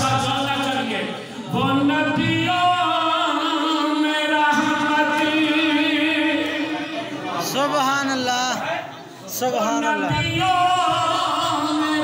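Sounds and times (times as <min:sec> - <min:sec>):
man chanting: 0:09.4 - 0:12.0.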